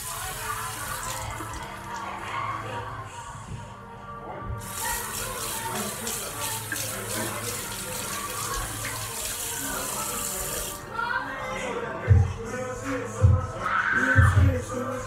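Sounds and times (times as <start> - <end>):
tap water splashing over hands: 4.6 - 10.8.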